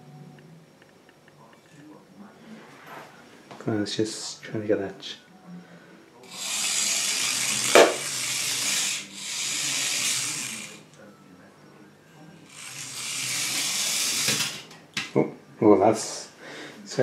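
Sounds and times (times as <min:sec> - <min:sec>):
toy car motor whirring: 0:06.2 - 0:11.0, 0:12.4 - 0:14.8.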